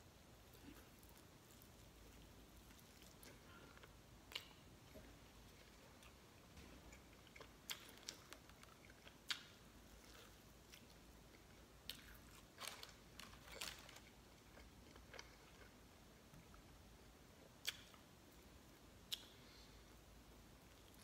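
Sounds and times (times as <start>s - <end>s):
person chewing: 0.4s - 16.7s.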